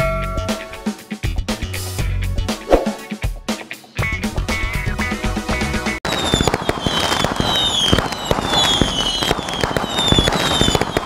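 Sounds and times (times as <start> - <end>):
fireworks crackling and popping: 6.0 - 11.0
falling whistles: 6.1 - 11.0.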